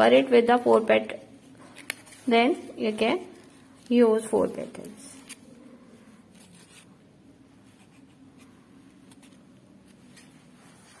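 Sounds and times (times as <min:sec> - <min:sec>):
low steady hum: 0:00.0 - 0:11.0
paper rustling: 0:01.6 - 0:02.5, 0:06.3 - 0:06.9, 0:07.6 - 0:11.0.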